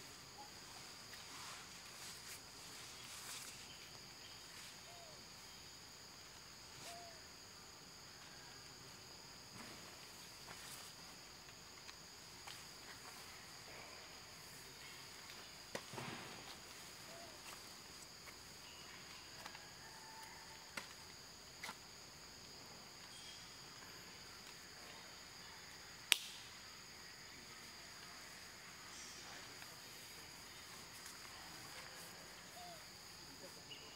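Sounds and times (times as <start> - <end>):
insects droning: 0.0 - 33.9
sharp click: 26.1 - 26.4.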